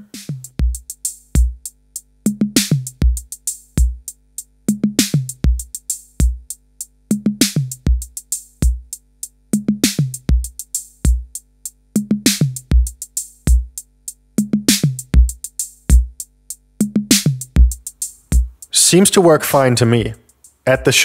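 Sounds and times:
hi-hats: 0.0 - 19.4, 20.0 - 21.0
kick drum: 0.5 - 0.8, 1.4 - 1.6, 2.3 - 4.0, 4.7 - 6.5, 7.1 - 8.9, 9.6 - 11.3, 12.0 - 13.8, 14.4 - 16.2, 16.8 - 18.6.

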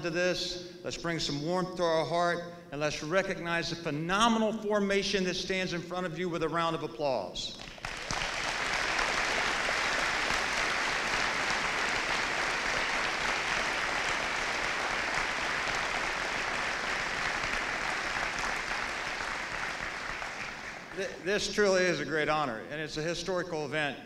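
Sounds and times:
audience applauding: 7.6 - 21.7.

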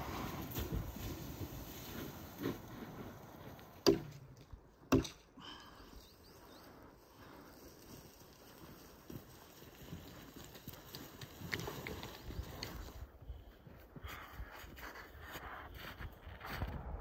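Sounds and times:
axe chopping wood: 3.8 - 5.3.

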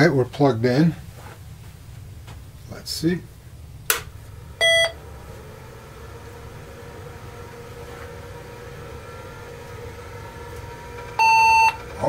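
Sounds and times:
computer mechanical hum: 0.0 - 12.0
hard drive spinning up whine: 4.2 - 12.0
short electronic beep: 4.6 - 5.0, 11.2 - 11.8.

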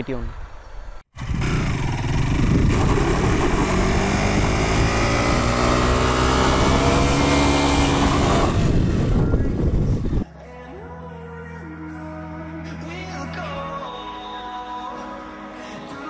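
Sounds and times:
motorcycle engine revving: 1.1 - 10.2.

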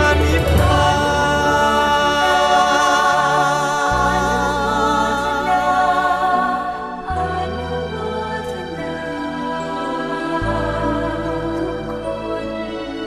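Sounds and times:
held bass notes: 0.0 - 7.3
slow choral singing: 0.0 - 13.0.

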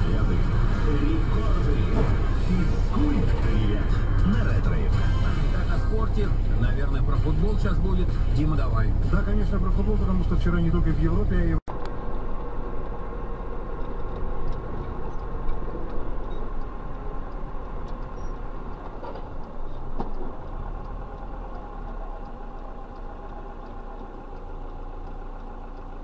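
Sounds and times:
car engine: 0.0 - 26.0
road noise: 0.0 - 26.0
faint clicks: 11.8 - 26.0.

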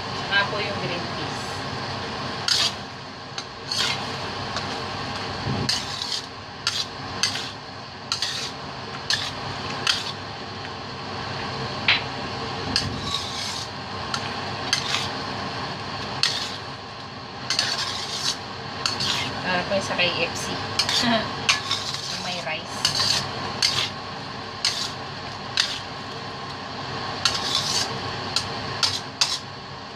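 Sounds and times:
utensil scraping a steel pan: 3.6 - 4.1, 5.6 - 10.2, 12.8 - 15.1, 16.2 - 16.6, 17.5 - 19.4, 20.8 - 23.9, 24.6 - 25.0, 25.6 - 25.9, 27.2 - 29.4.

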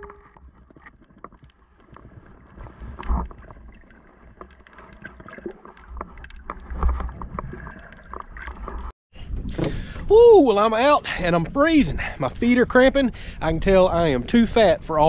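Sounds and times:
underwater sloshing and gurgling: 0.0 - 10.0.

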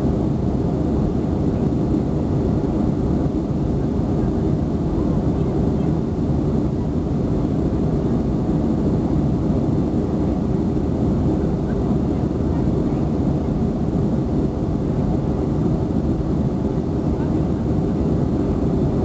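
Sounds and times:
aircraft engines roaring: 0.0 - 19.0.

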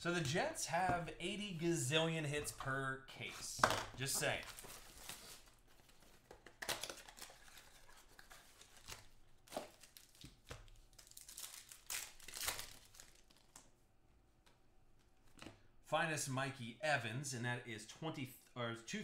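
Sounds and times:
foil wrappers crinkling and tearing: 4.5 - 13.6.

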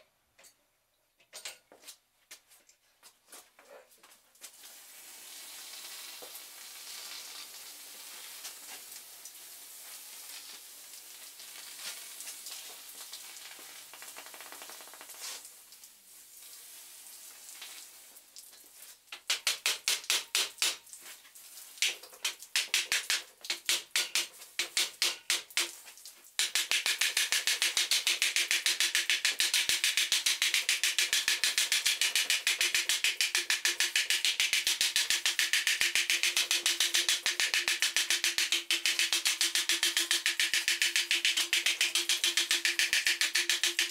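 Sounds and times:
water sizzling into steam on hot metal: 4.5 - 18.2, 18.8 - 43.9
fast sharp strokes: 26.4 - 43.9.

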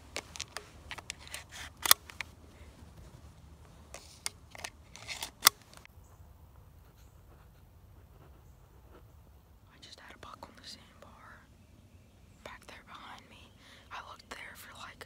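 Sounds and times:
microphone handling clicks and rustles: 0.0 - 5.9.

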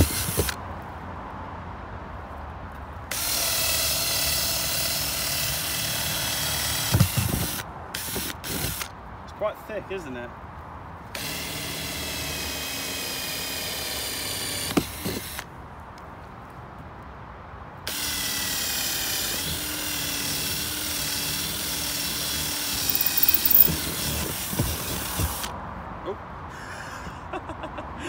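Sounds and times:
drill boring through plastic: 22.7 - 23.7
cordless drill whining: 22.8 - 23.7
short rattle: 22.9 - 23.7.

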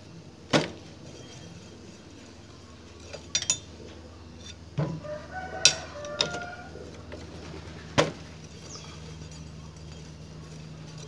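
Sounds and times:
wrench clinking on metal bolts: 3.0 - 3.7.

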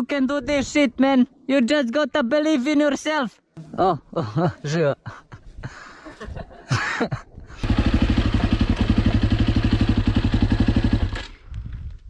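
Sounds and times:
motorcycle engine idling: 7.6 - 11.2.

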